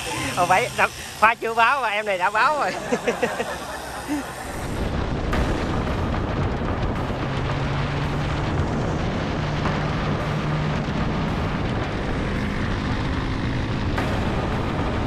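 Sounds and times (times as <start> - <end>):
motorcycle engine hum: 0.0 - 15.0
wind rushing on microphone: 4.2 - 15.0.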